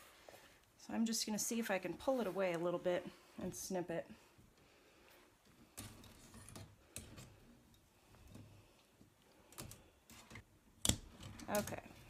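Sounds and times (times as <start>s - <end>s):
fabric rustling: 1.6s - 3.7s.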